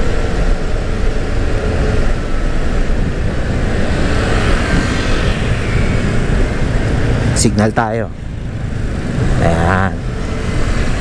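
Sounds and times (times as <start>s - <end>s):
road traffic noise: 0.0s - 11.0s
wind rumble on microphone: 0.0s - 11.0s
scooter engine running: 2.2s - 11.0s.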